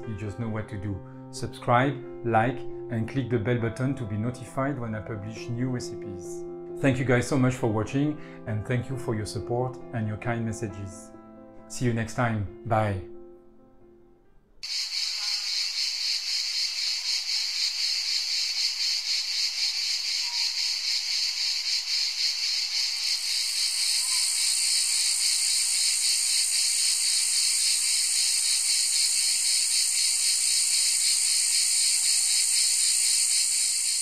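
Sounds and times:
insects chirring: 14.6 - 34.0.

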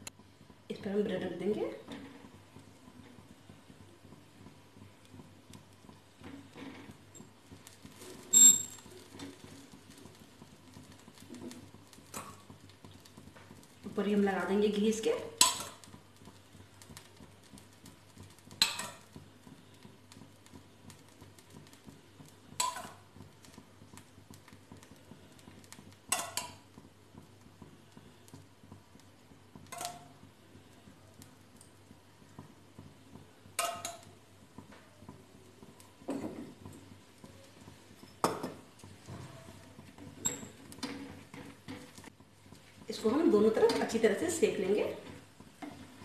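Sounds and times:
metal utensils clinking on cookware: 26.1 - 26.6.

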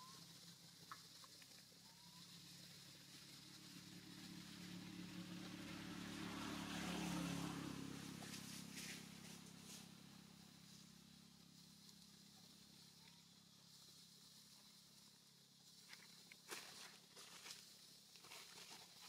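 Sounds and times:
passing vehicle engine: 2.2 - 14.4.

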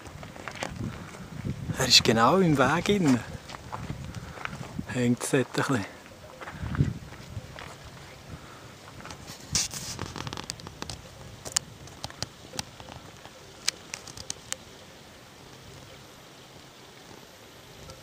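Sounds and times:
rustling: 5.9 - 14.7.

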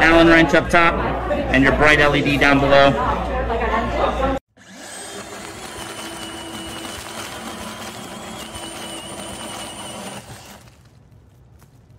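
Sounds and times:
cordless drill boring through wood: 4.6 - 10.9.

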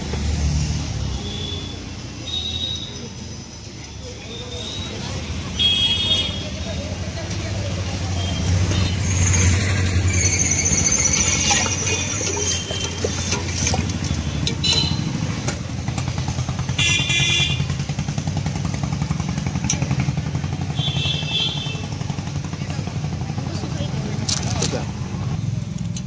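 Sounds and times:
road traffic: 0.0 - 26.0
high squeal: 8.2 - 14.4.

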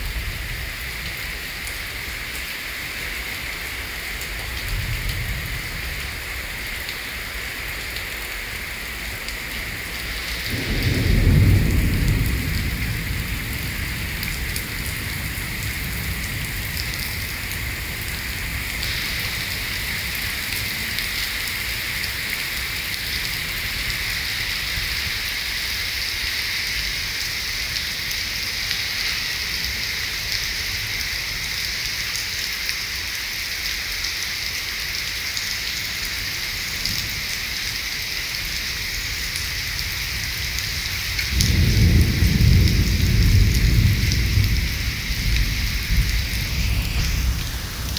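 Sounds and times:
heavy rain on wet pavement: 0.0 - 47.9
low roll of thunder: 10.1 - 21.0, 40.1 - 47.9.

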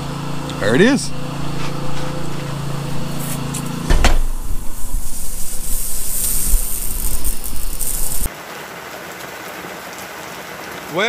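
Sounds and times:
low machine hum: 0.0 - 8.3
sprinklers spraying water: 4.5 - 11.0.

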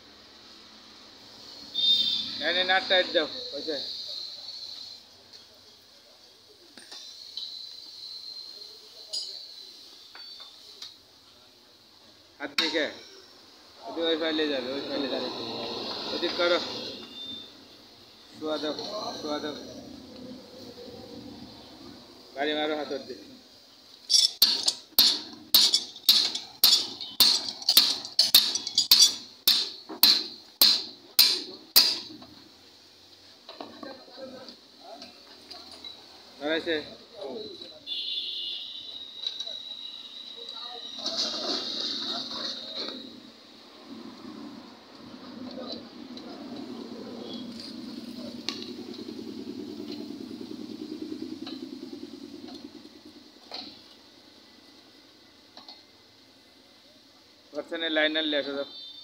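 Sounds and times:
sharp metallic clicks: 23.9 - 32.2
metal strikes on spoked wheel: 24.1 - 32.1.

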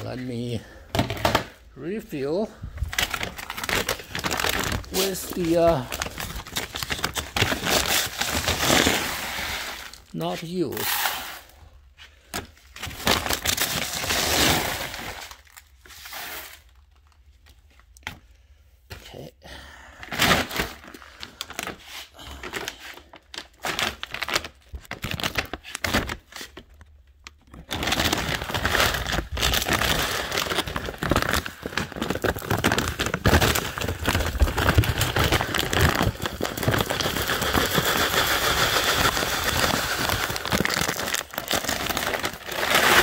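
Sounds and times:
paper bag crinkling: 0.0 - 11.5, 20.4 - 43.0
litter pouring into plastic box: 36.9 - 40.3.

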